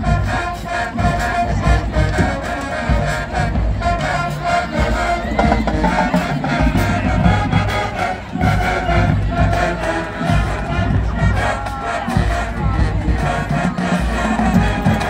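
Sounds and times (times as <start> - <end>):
brass and sousaphone chords: 0.0 - 15.0
marching drums beat: 2.9 - 11.5.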